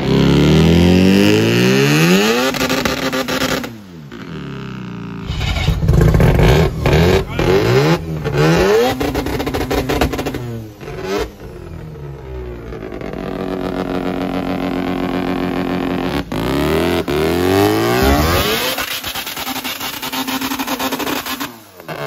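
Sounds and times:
small engine revving hard: 5.1s - 11.3s, 15.5s - 22.0s.

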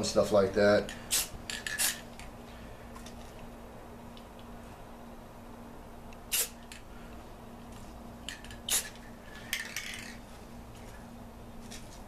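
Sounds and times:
spray paint can hissing: 1.1s - 2.0s, 6.3s - 6.7s, 8.4s - 9.1s.

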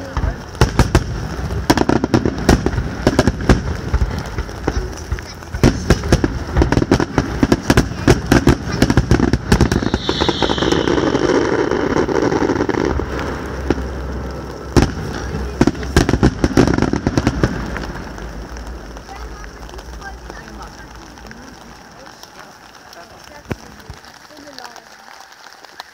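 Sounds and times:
fireworks bangs: 0.0s - 25.9s
fireworks crackling hiss: 0.0s - 25.9s
high-pitched hiss: 7.4s - 16.1s.

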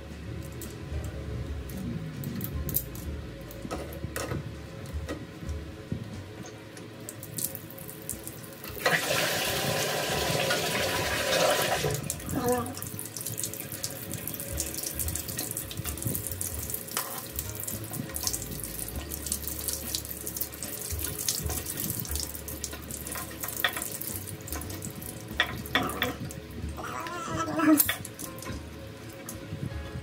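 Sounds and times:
water pouring onto tiled floor: 7.0s - 29.4s.

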